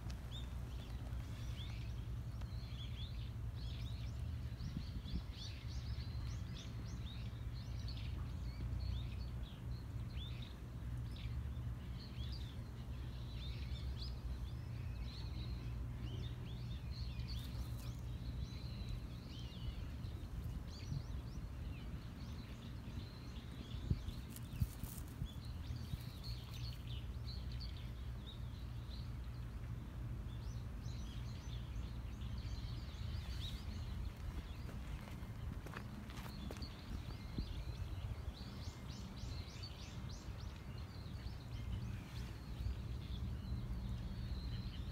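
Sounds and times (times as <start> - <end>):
low outdoor rumble: 0.0 - 44.9
small birds chirping: 0.0 - 44.9.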